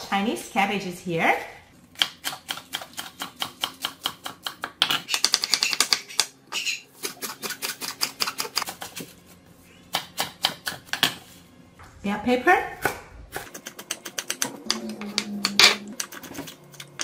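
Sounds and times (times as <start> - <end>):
knife chopping vegetables on wood: 2.0 - 6.0, 9.9 - 11.2.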